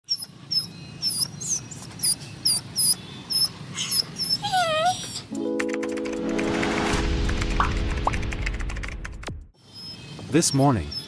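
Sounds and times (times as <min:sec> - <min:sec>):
puppy crying and whining: 0:00.1 - 0:05.3.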